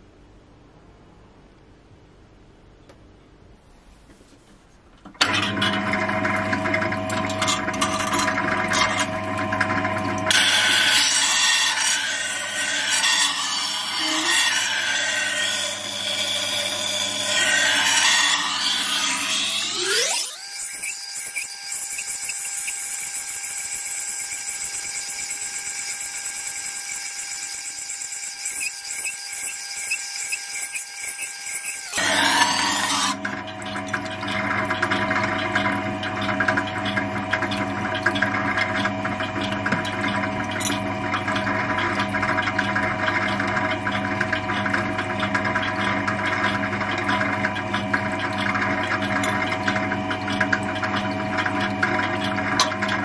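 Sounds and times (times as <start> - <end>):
sharpening machine motor humming: 10.3 - 33.2
knife grinding on abrasive wheel: 10.6 - 33.2.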